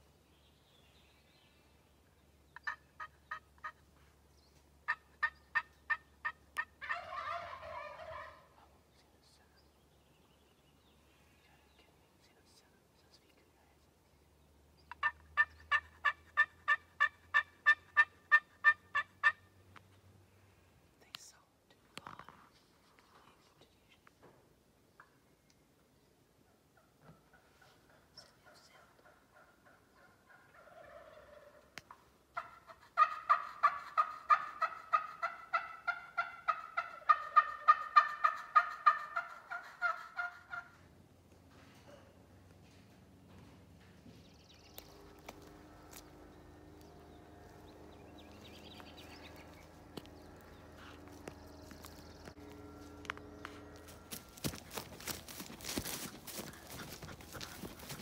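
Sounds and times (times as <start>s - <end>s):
turkey yelping: 4.9s - 8.4s, 14.9s - 19.4s, 32.4s - 40.8s.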